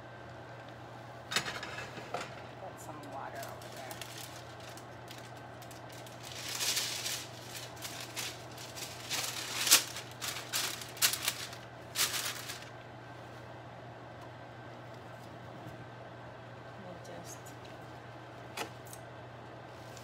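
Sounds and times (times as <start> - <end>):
steady low hum: 0.0 - 20.0
crinkly hissing bursts: 3.3 - 13.4.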